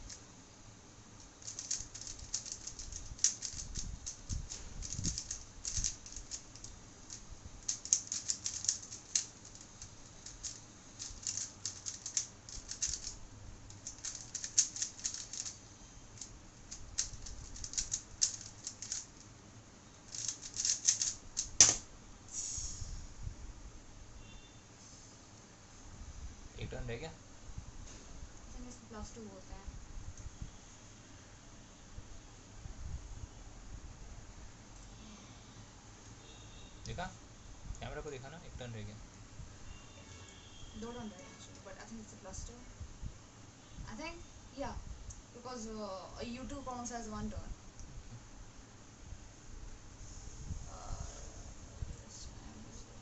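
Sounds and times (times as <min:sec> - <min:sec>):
plastic puzzle cube clicking: 0:01.4 - 0:13.2, 0:13.8 - 0:15.6, 0:16.2 - 0:19.1, 0:20.1 - 0:21.8
sharp keyboard tap: 0:20.2 - 0:21.8.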